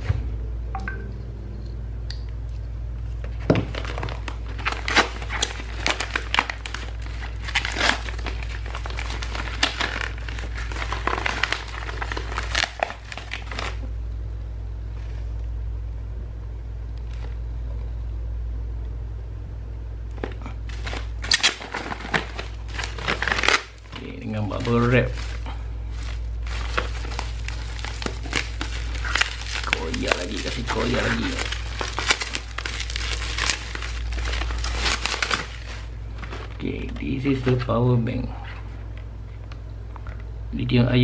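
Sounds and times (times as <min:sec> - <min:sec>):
steady low hum: 0:00.0 - 0:41.0
paper packaging tearing and crumpling: 0:03.6 - 0:13.9, 0:20.4 - 0:37.7.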